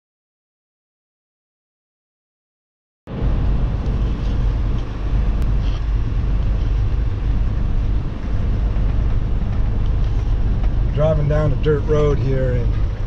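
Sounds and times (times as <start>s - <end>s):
vehicle rumble on dirt road: 3.1s - 13.0s.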